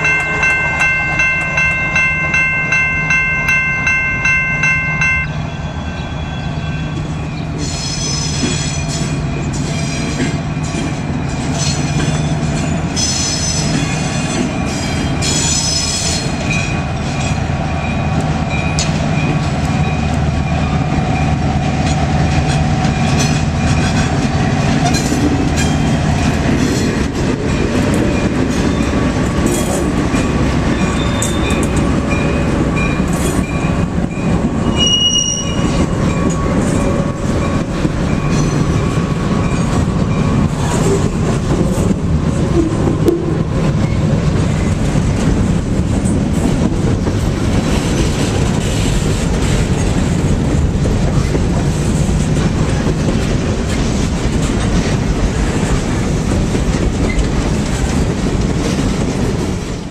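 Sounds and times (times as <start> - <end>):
diesel locomotive engine running: 0.0 - 13.0
train wheels squealing: 5.3 - 19.4, 30.7 - 41.1
wheels clicking over rail joints: 21.7 - 59.9.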